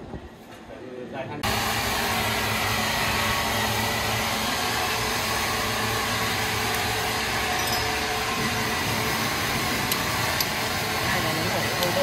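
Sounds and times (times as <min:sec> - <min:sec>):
powered wood saw running: 0:01.4 - 0:12.0.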